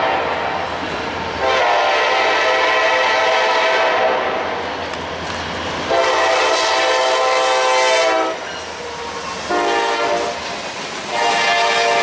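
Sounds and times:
locomotive air horn blasts: 0.0s - 0.6s, 1.4s - 4.4s, 5.9s - 8.5s, 9.5s - 10.4s, 11.1s - 12.0s
passing train rolling noise: 0.0s - 12.0s.

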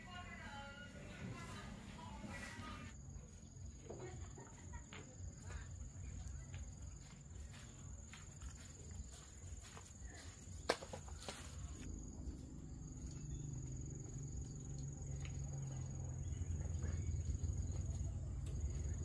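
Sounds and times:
high insect trill: 11.2s - 19.0s
low engine hum: 11.8s - 19.0s.

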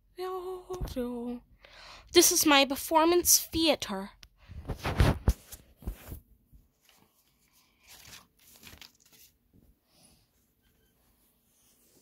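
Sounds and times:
microphone handling rustle: 4.5s - 6.3s.

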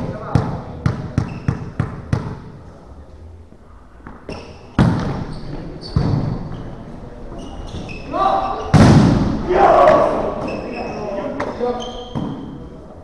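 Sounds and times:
volleyball hit echoing: 8.6s - 10.5s.

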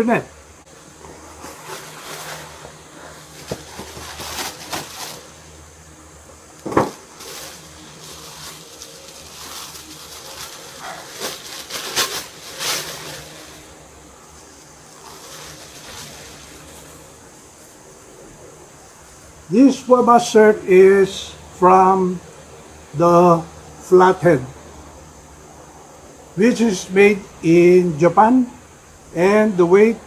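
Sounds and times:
paper and plastic bag rustling: 1.0s - 5.5s, 6.7s - 13.8s, 14.9s - 17.1s.

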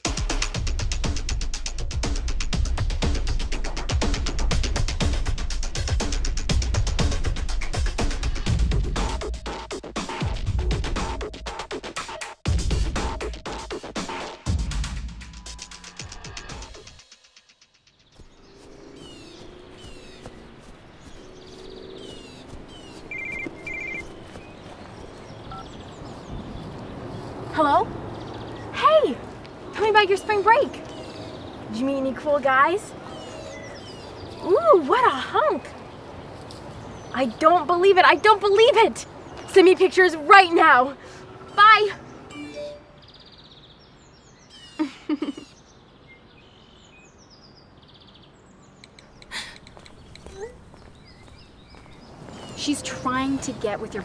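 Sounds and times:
small birds chirping: 16.6s - 54.0s
young woman giggling: 44.8s - 45.6s, 49.2s - 49.8s.

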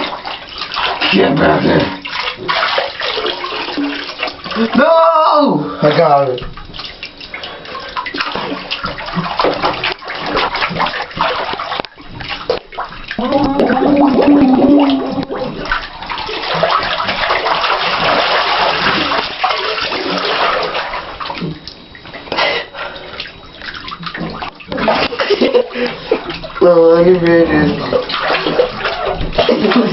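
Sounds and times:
water splashing in bathtub: 0.0s - 29.9s
person vocalizing: 13.2s - 15.6s.

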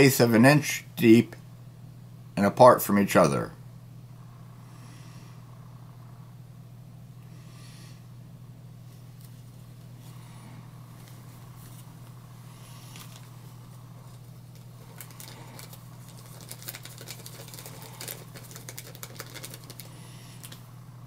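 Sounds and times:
steady low hum: 0.0s - 21.0s
seed packet crinkling and rustling: 12.9s - 13.3s, 14.0s - 20.6s.

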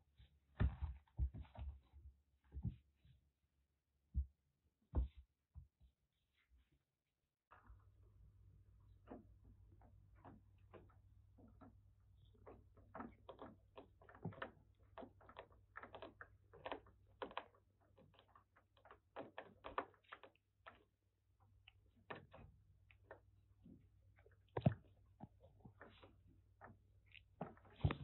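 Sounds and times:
kitten gnawing plastic bowl: 9.0s - 20.9s.

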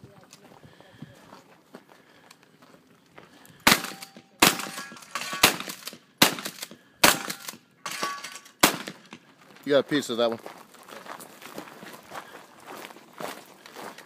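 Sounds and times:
shotgun shots: 3.7s - 9.2s.

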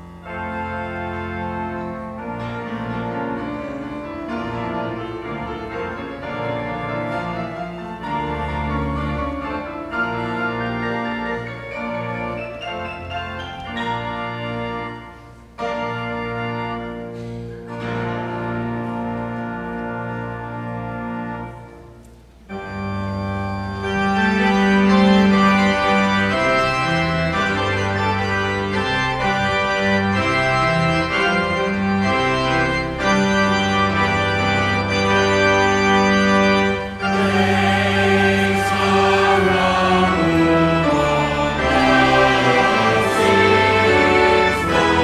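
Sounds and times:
church organ chords: 0.0s - 45.0s
congregation and choir singing: 36.6s - 45.0s.

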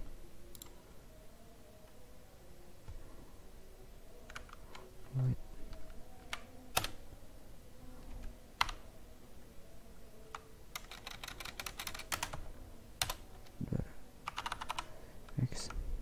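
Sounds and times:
computer keyboard typing: 0.5s - 0.8s, 4.2s - 4.9s, 5.7s - 7.0s, 8.2s - 8.8s, 10.3s - 12.4s, 13.0s - 13.4s, 14.2s - 15.0s.

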